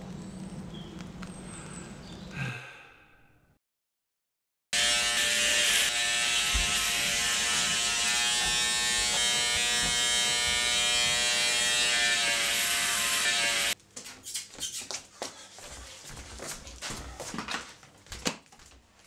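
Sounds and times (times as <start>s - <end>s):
electric shaver buzzing: 4.8s - 13.8s.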